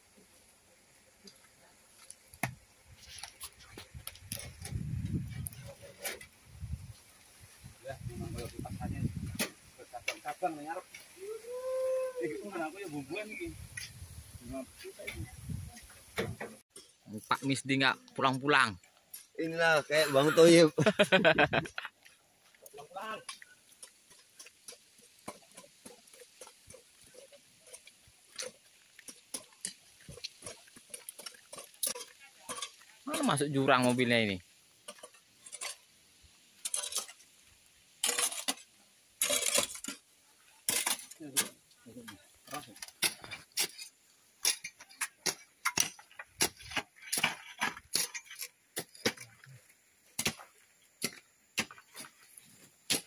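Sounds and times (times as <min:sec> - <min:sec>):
footsteps on dirt track: 0:02.9 - 0:05.5
hand tools striking hard earth: 0:22.7 - 0:34.2, 0:36.6 - 0:37.3, 0:38.0 - 0:53.0.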